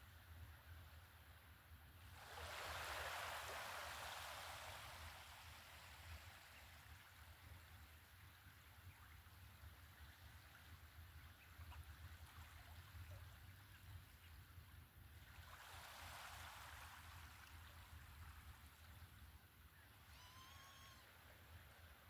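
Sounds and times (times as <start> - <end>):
small waves lapping: 2.0 - 22.0
short bird call: 20.1 - 21.1.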